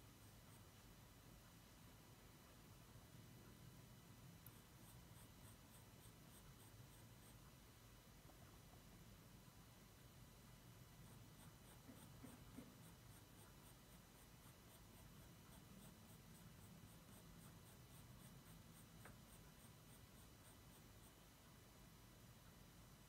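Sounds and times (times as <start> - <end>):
pencil scratching on paper: 4.4 - 7.5, 11.0 - 21.2.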